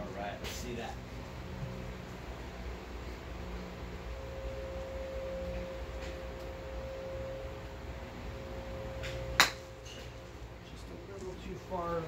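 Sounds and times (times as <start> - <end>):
steady humming tone: 0.0 - 12.0
golf club striking ball: 9.0 - 10.1.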